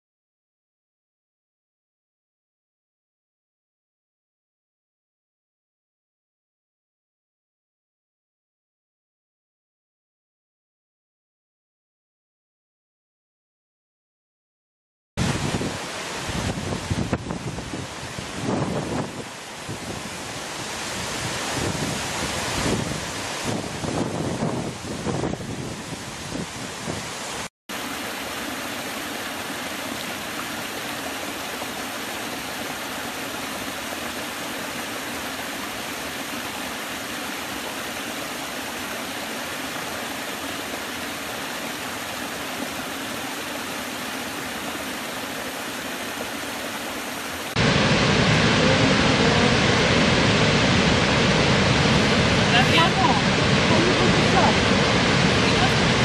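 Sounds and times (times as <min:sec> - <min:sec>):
large waterfall rushing: 0:15.2 - 0:56.0
water rushing over cascade: 0:15.2 - 0:56.0.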